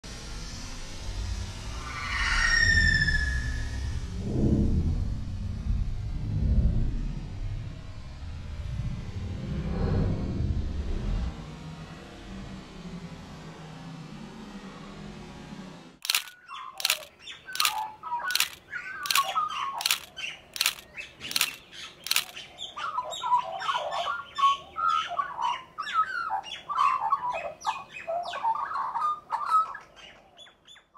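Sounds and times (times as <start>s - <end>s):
sharp clicks: 16.0s - 22.4s.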